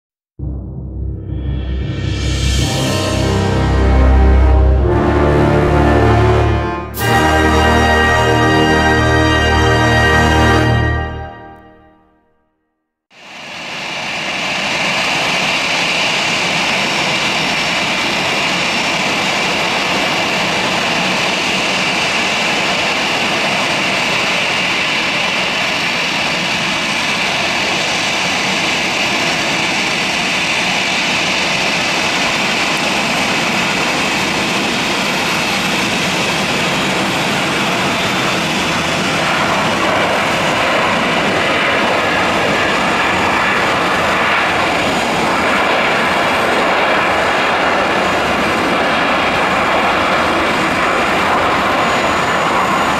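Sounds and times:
jet engines whining: 0:00.4 - 0:12.0, 0:13.2 - 0:52.9.

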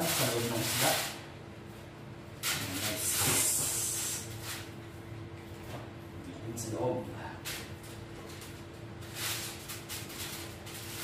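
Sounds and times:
aluminium foil crinkling: 0:00.0 - 0:01.2, 0:02.4 - 0:04.7, 0:07.4 - 0:11.0.

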